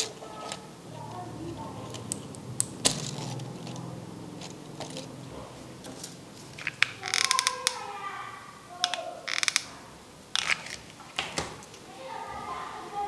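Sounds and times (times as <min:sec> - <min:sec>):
handling paper and plastic: 0:00.0 - 0:07.4
ratchet-like clicking of hand tool: 0:09.3 - 0:09.7.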